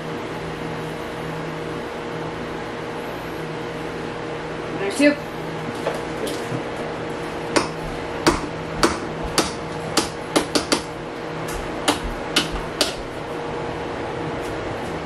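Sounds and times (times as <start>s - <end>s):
low background hum: 0.0s - 15.0s
utensil knocking against a pot: 7.6s - 10.9s, 11.9s - 13.0s.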